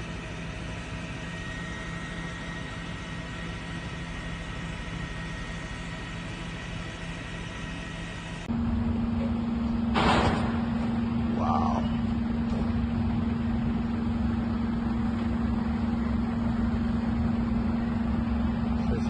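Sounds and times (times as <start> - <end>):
vehicle engines rumbling: 8.4 - 19.0.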